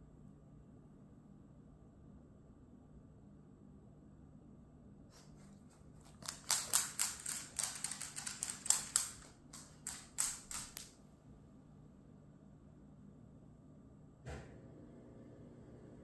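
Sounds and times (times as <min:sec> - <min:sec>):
dog claws clicking on hard floor: 0:05.2 - 0:11.0.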